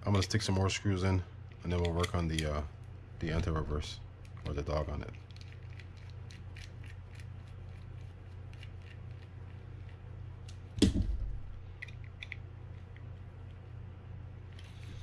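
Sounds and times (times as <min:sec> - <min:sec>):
steady low hum: 0:00.0 - 0:15.0
louder knock: 0:10.8 - 0:11.4.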